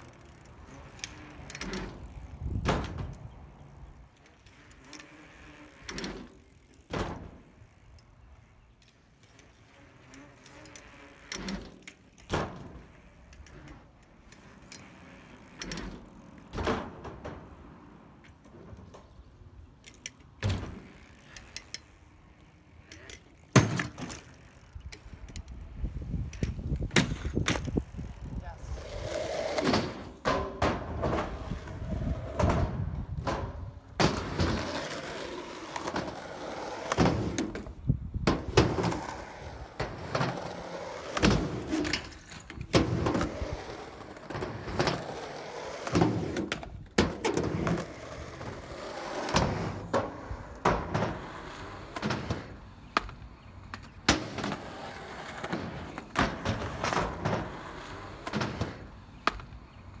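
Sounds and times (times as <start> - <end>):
skateboard wheels rolling: 0.0 - 60.0
skateboard clacking and landing: 28.9 - 60.0.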